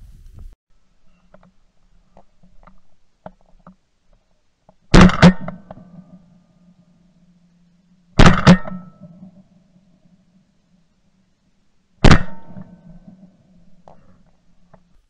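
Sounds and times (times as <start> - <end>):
shotgun firing: 4.9 - 5.6, 8.2 - 8.9, 12.0 - 12.8.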